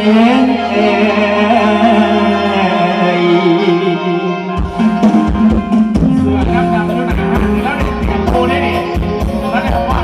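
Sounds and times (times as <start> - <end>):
live band wavering melody: 0.0 - 10.0
drums: 4.4 - 10.0.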